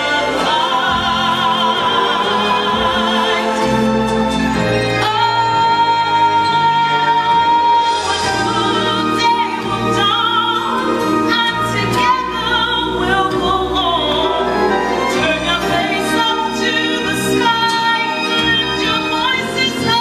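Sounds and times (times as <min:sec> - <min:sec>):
accompanying music: 0:00.0 - 0:20.0
woman singing with vibrato: 0:05.0 - 0:20.0.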